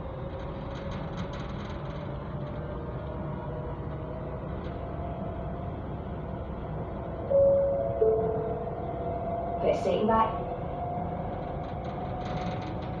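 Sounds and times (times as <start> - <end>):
wheels rumbling on rail: 0.0 - 13.0
train motor whine: 6.8 - 13.0.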